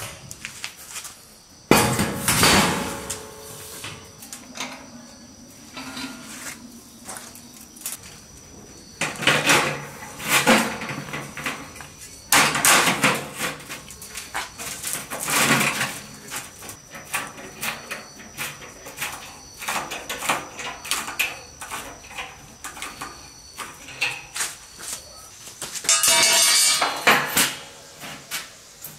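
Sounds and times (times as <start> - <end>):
steel sheet flexing and rattling: 9.0 - 23.0.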